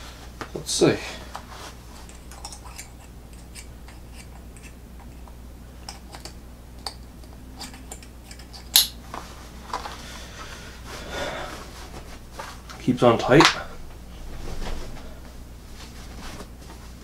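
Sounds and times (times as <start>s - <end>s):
webbing rustling: 9.0s - 17.0s.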